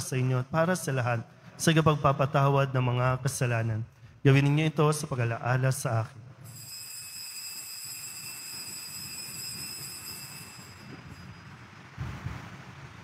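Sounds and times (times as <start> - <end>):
bell ringing: 6.4 - 11.7.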